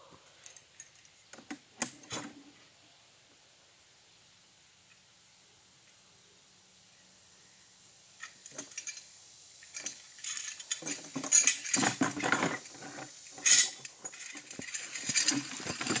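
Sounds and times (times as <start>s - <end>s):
metal pulley and carabiner clinking: 8.2s - 16.0s.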